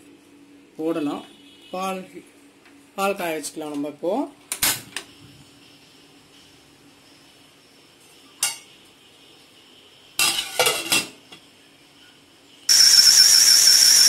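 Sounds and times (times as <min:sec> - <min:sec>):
loud hiss with whistling tone: 0:12.0 - 0:14.0.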